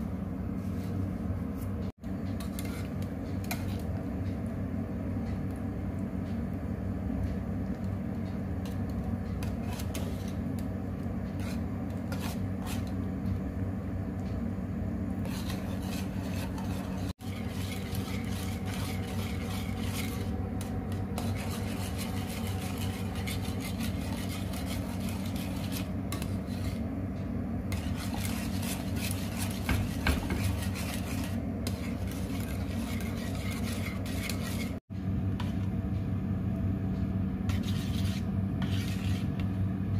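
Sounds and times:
steady low hum: 0.0 - 39.9
utensil scraping in cooking pot: 0.5 - 3.9, 8.6 - 13.1, 15.2 - 27.0, 27.7 - 34.8, 37.5 - 39.5.

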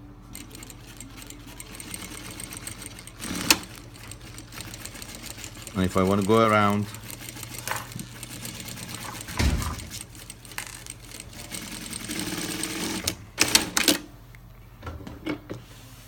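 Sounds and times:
sewing machine clattering: 0.4 - 14.0
dull thump: 9.3 - 9.9.

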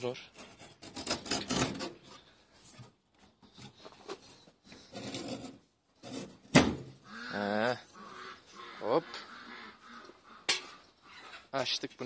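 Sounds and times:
wooden latch scraping on metal gate: 0.3 - 2.2.

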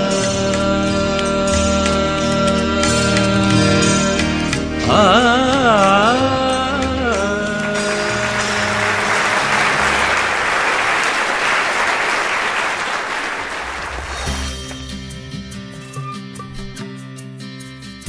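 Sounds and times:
song's held notes: 0.0 - 12.0
audience applauding: 7.4 - 14.6.

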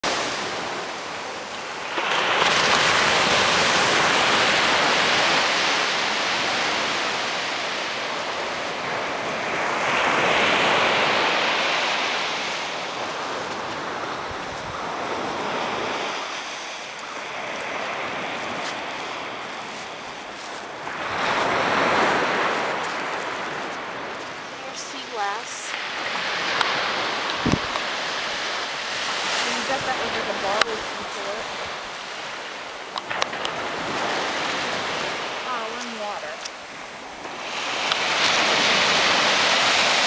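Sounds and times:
waves washing up a beach: 0.0 - 40.0.

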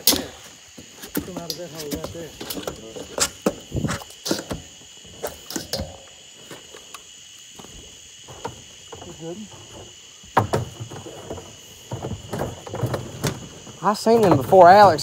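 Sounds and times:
crickets chirping: 0.0 - 15.0
knocks and clatters: 7.6 - 15.0.

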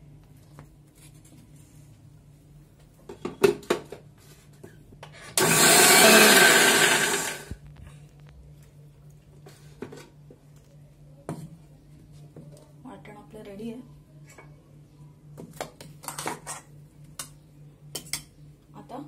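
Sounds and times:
mixer grinder motor running: 5.4 - 7.6.

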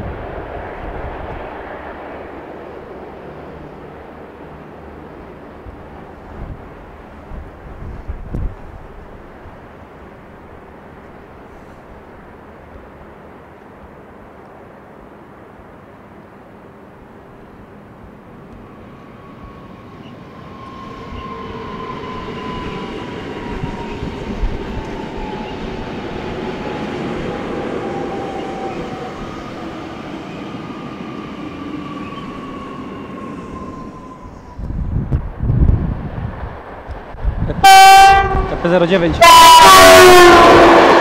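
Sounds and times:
train wheels rumbling on rails: 0.0 - 41.0
train whine sliding down in pitch: 18.5 - 41.0.

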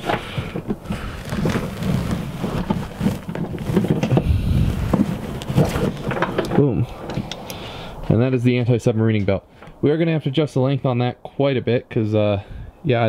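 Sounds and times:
harness strap rustling and clicking: 0.0 - 7.6
low rumbling bumps: 2.7 - 7.1.

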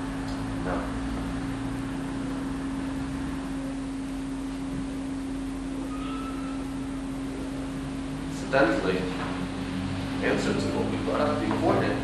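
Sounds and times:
steady hum: 0.0 - 12.0
faint brief higher tone: 5.8 - 6.6.

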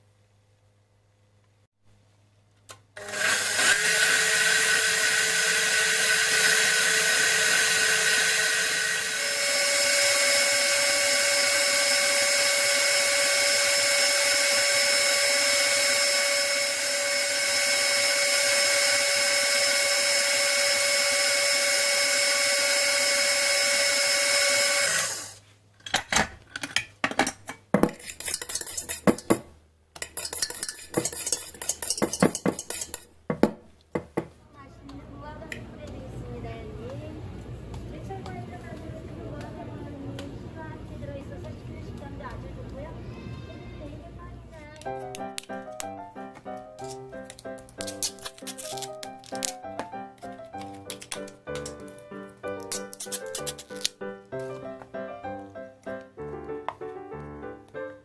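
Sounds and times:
stand mixer motor whine: 3.0 - 25.4
steel bowl and whisk clinking: 27.8 - 29.4, 30.0 - 33.1.

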